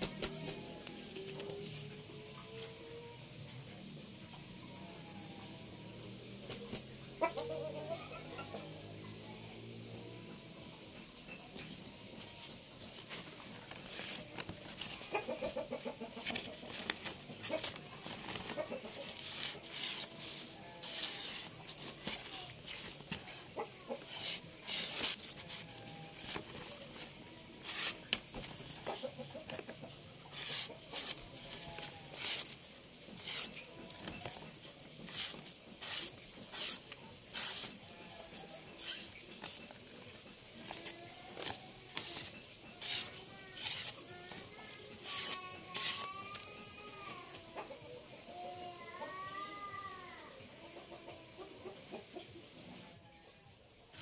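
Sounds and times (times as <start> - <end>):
chickens clucking: 14.2 - 19.7, 23.2 - 24.6, 28.5 - 31.7, 50.5 - 52.8
blade slicing paper: 16.2 - 29.1, 30.3 - 37.9, 38.8 - 39.6, 40.7 - 46.5.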